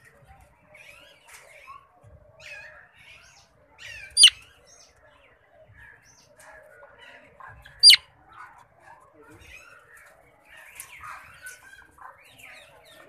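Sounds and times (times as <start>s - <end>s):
caged birds twittering: 0.0s - 13.0s
parakeet shrill squawks: 4.0s - 4.4s.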